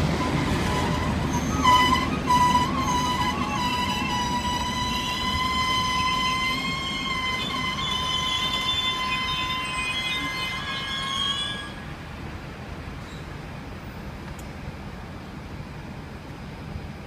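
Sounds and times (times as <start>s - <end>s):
train wheel squeal: 0.0s - 12.2s, 13.0s - 13.4s
train carriages rumbling: 0.0s - 13.5s.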